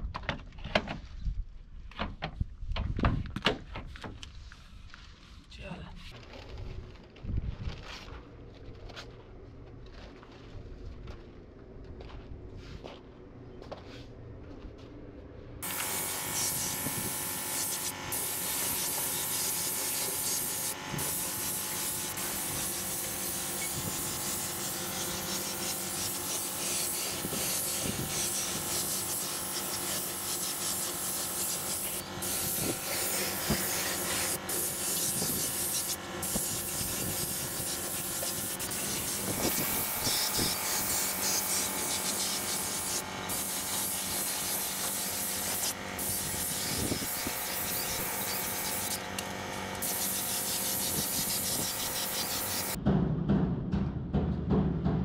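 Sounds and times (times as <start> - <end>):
paint spray gun hissing: 15.6 - 52.8.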